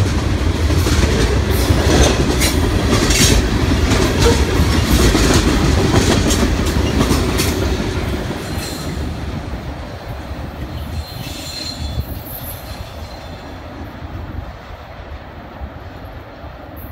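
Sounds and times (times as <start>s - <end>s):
train wheels clicking over rail joints: 0.0s - 13.7s
faint high wheel squeals: 10.9s - 13.4s.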